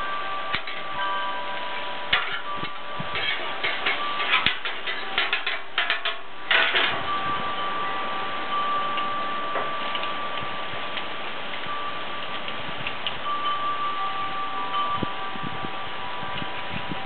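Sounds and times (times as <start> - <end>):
wind chimes ringing: 0.0 - 17.0
utensil scraping griddle: 2.1 - 7.0
utensils clicking on griddle: 2.1 - 7.0.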